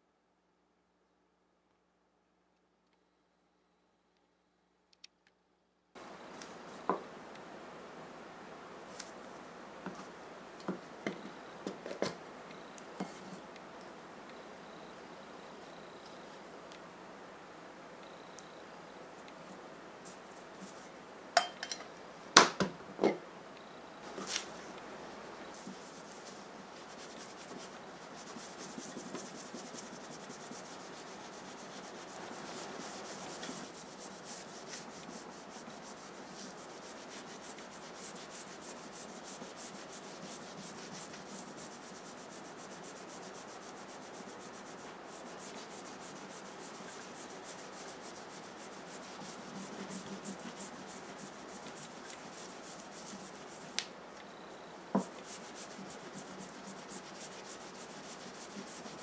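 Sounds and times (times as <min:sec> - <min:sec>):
cloth rubbing on knife blade: 0:25.4 - 0:53.8, 0:55.0 - 0:59.0.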